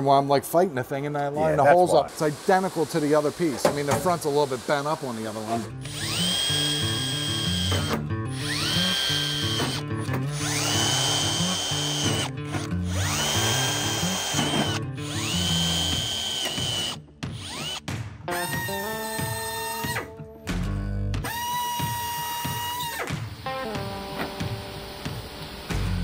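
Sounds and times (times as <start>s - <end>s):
cordless drill whining: 4.8s - 20.0s, 21.2s - 23.5s.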